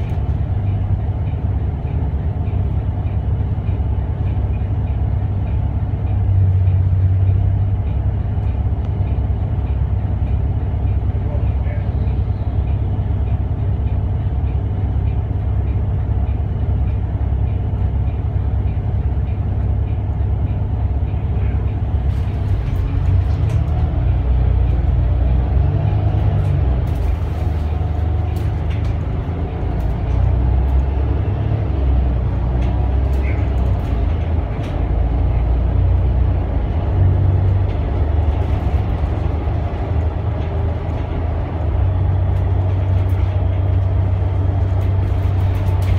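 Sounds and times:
bus diesel engine: 0:00.0 - 0:45.9.

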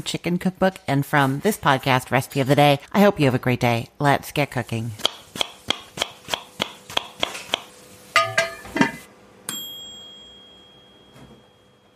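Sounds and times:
bright bell-like ding: 0:09.5 - 0:11.9.

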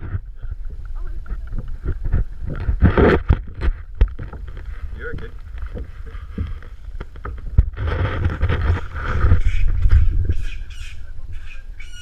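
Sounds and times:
wind rumble: 0:00.0 - 0:12.0
macaque squawking calls: 0:09.4 - 0:12.0.

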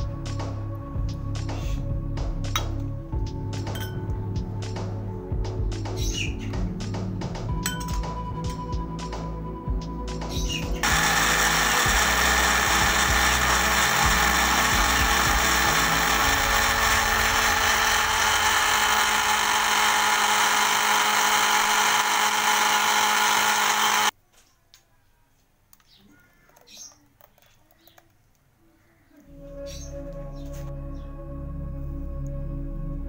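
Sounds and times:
electric blender running: 0:10.8 - 0:24.1.

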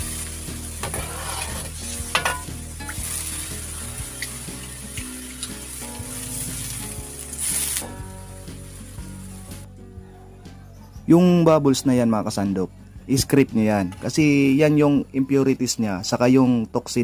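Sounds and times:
broth simmering with sizzling hiss: 0:00.0 - 0:09.7
metal ladle clinking against pan: 0:02.1 - 0:03.0.

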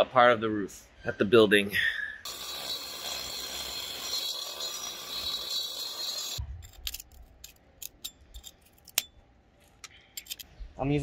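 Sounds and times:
angle grinder grinding concrete: 0:02.3 - 0:06.4
hand scraper scraping concrete: 0:02.3 - 0:06.4.

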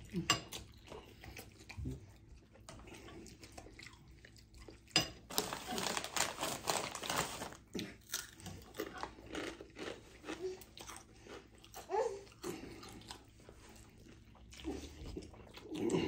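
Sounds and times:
chip bag crinkling: 0:05.2 - 0:10.4.

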